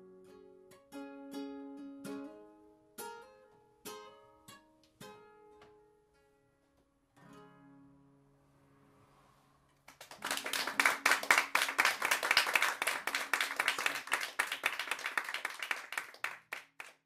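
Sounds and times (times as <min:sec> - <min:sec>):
small audience clapping: 0:09.8 - 0:17.0.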